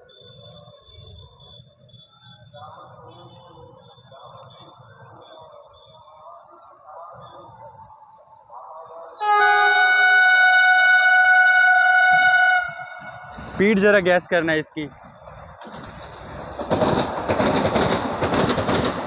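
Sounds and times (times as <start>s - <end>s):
birds chirping: 0.0s - 9.8s
train horn blast: 9.2s - 13.6s.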